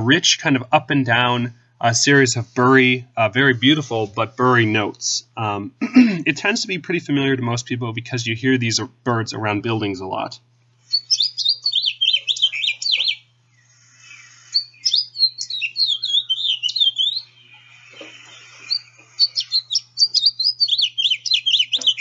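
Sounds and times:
finch song: 0:10.8 - 0:22.0.

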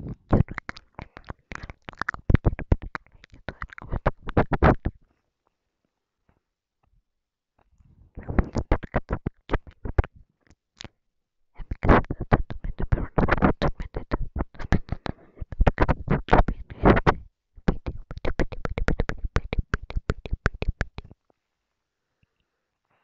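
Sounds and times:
wet lip and tongue clicks: 0:00.0 - 0:05.0, 0:08.2 - 0:10.2, 0:11.6 - 0:21.2.

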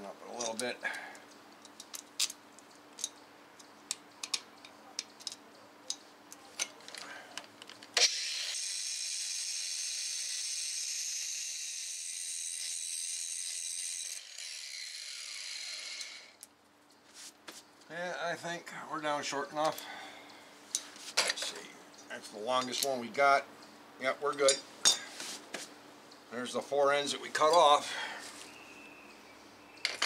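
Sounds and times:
angle grinder cutting bolts: 0:07.9 - 0:16.4.

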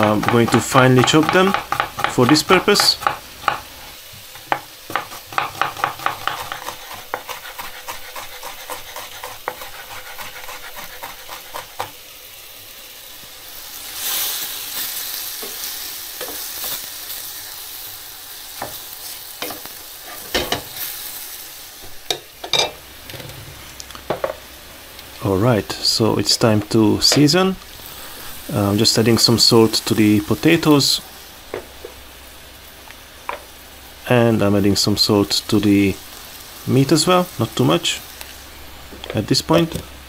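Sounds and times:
meat frying in a pan: 0:00.0 - 0:40.0
knife chopping on wooden board: 0:00.2 - 0:03.6, 0:04.4 - 0:11.9.

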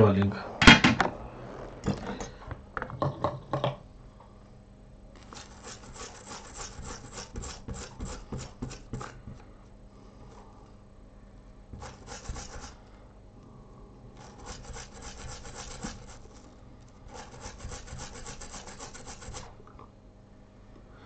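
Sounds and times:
toothbrush scrubbing a chip: 0:05.2 - 0:09.2, 0:11.8 - 0:12.9, 0:14.2 - 0:19.6.

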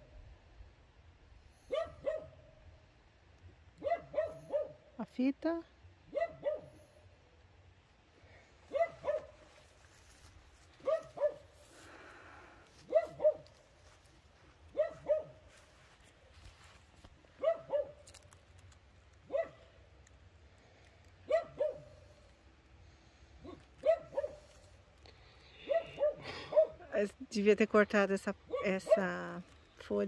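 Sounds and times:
dog barking: 0:01.7 - 0:02.4, 0:03.8 - 0:04.8, 0:06.1 - 0:06.8, 0:08.7 - 0:09.5, 0:10.8 - 0:11.5, 0:12.8 - 0:13.6, 0:14.7 - 0:15.4, 0:17.4 - 0:18.0, 0:19.3 - 0:19.7, 0:21.3 - 0:22.0, 0:23.4 - 0:24.5, 0:25.6 - 0:26.8, 0:28.5 - 0:29.2.

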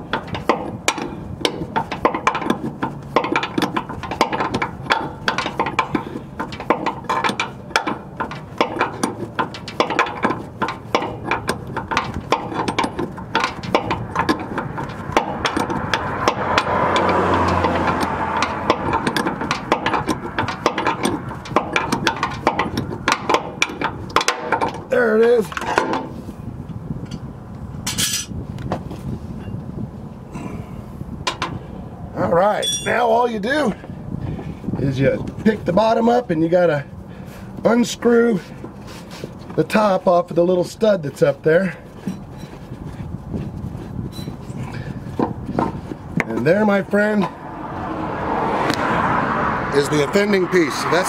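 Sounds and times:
plastic and metal parts clicking and rattling: 0:00.0 - 0:24.9.

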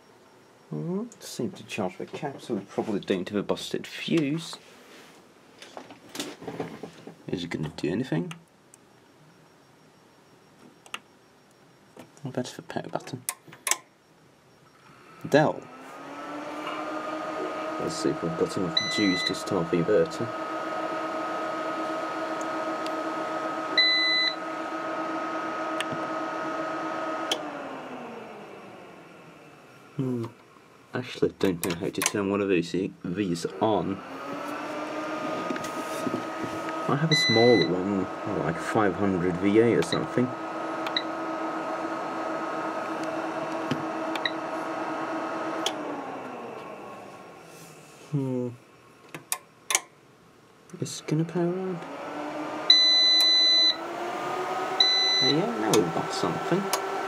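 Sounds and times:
power supply whine: 0:00.0 - 0:04.6, 0:05.6 - 0:57.0
short electronic beep: 0:37.1 - 0:37.8, 0:54.8 - 0:55.6.

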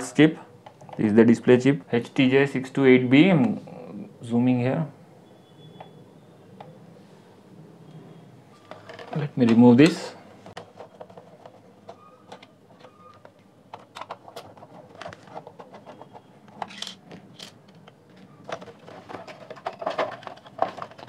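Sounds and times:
screwdriver clicks and scrapes: 0:10.8 - 0:18.0.

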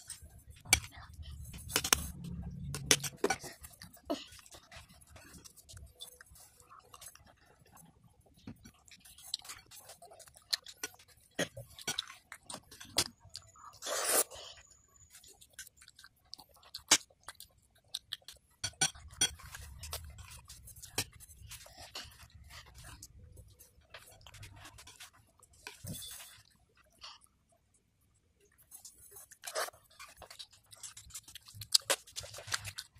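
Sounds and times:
child chewing: 0:00.0 - 0:32.9
low hum: 0:00.4 - 0:03.6.

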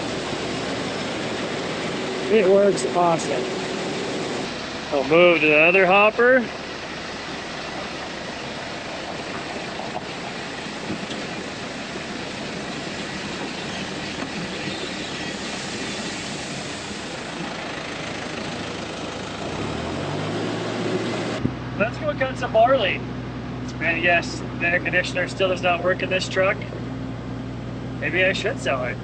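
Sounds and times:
grain pouring hiss: 0:00.0 - 0:18.9
low engine hum: 0:00.0 - 0:29.0.

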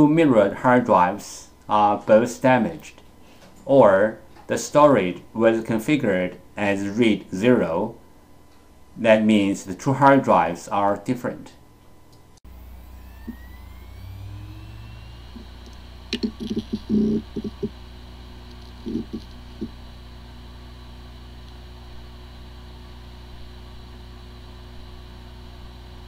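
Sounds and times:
hard drive humming: 0:11.6 - 0:26.0
hard drive spin-up whine: 0:12.4 - 0:26.0
hard drive head ticks: 0:15.4 - 0:17.8, 0:18.5 - 0:19.8.

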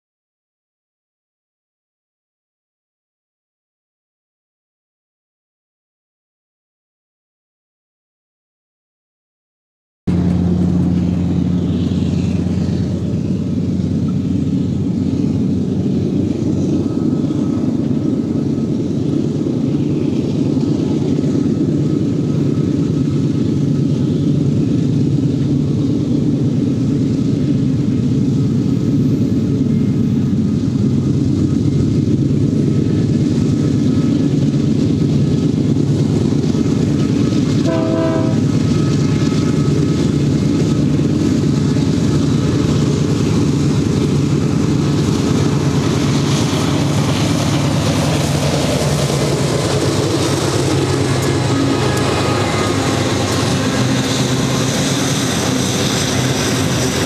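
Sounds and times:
diesel locomotive engine drone: 0:10.1 - 0:57.0
steel wheels rattling on rail: 0:10.1 - 0:57.0
train horn blast: 0:37.6 - 0:38.9, 0:50.7 - 0:55.9.

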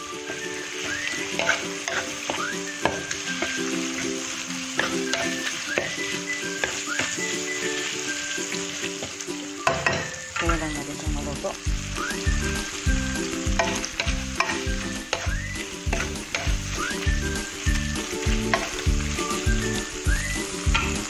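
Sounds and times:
food sizzling in hot oil: 0:00.0 - 0:21.0
wooden spatula scraping wok: 0:00.0 - 0:21.0
background music with low beat: 0:09.6 - 0:21.0.

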